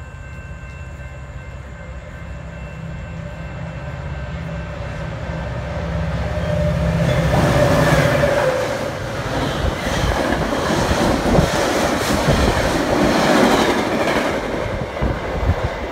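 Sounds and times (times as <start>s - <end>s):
locomotive engine drone: 0.0s - 10.6s
train wheels clattering over rails: 7.1s - 15.9s.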